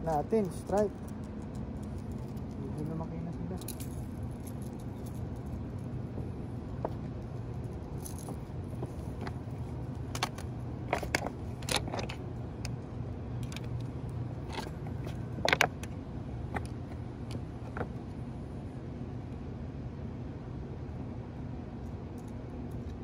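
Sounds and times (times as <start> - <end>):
low background rumble: 0.0 - 23.0
fishing tackle clicks and rattles: 7.6 - 12.8, 13.4 - 17.9.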